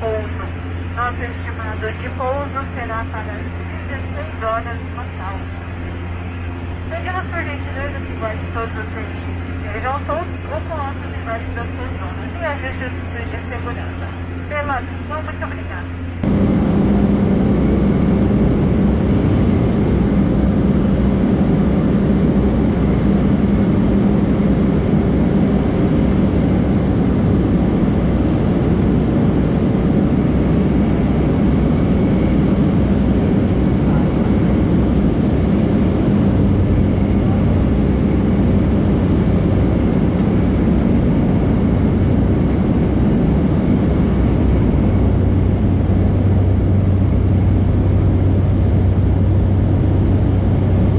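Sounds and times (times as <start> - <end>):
turboprop engine drone: 0.0 - 50.9.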